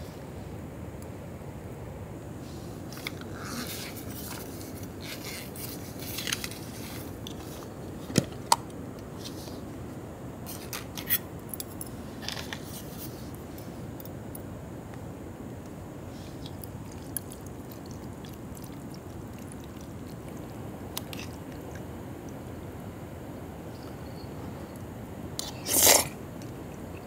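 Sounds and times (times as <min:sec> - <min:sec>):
low background hiss: 0:00.0 - 0:27.0
pot rasps and scrapes: 0:03.3 - 0:07.5, 0:25.4 - 0:26.2.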